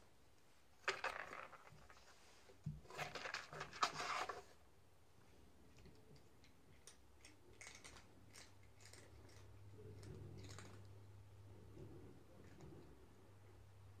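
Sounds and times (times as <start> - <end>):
cat crunching dry kibble: 0.8 - 2.2, 2.9 - 4.4, 5.8 - 13.0.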